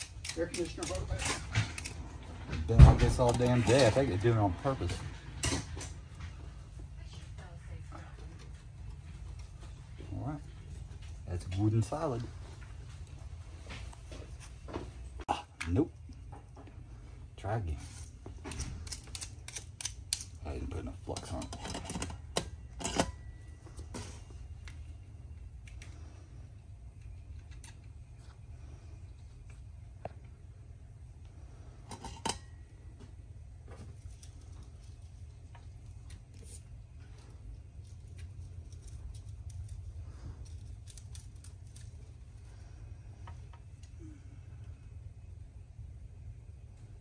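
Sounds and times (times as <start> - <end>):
steady low hum: 0.0 - 47.0
soldering clicks and crackles: 18.8 - 20.4.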